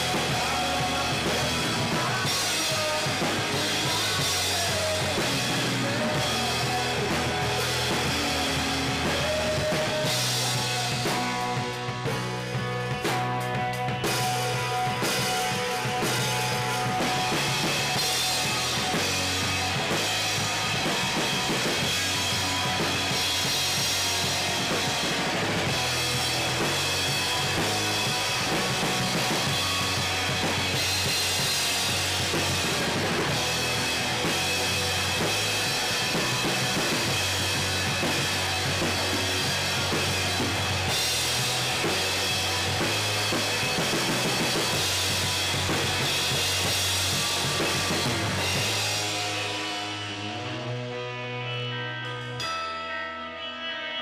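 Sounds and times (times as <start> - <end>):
loud drums: 0.0 - 52.5
live rock band playing: 0.0 - 54.0
ringing cymbals: 51.3 - 54.0.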